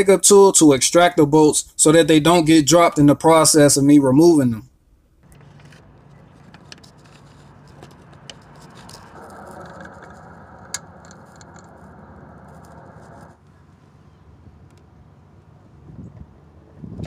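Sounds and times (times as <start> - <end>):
metallic clicks and scrapes: 5.2 - 13.4.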